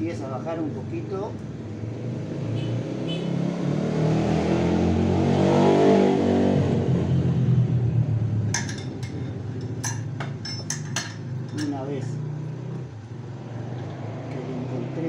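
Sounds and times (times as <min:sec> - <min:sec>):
vehicle engine revving: 0:01.6 - 0:08.3
sharp metal clinks: 0:08.6 - 0:11.9.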